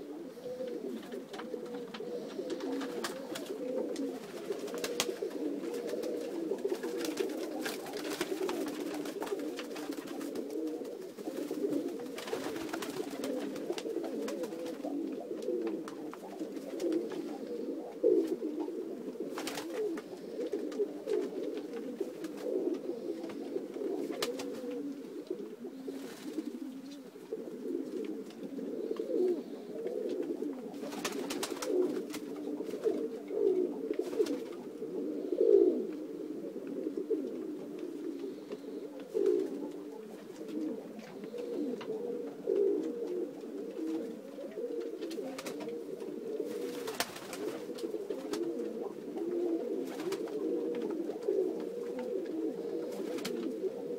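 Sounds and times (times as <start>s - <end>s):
pigeons cooing: 0.0s - 53.9s.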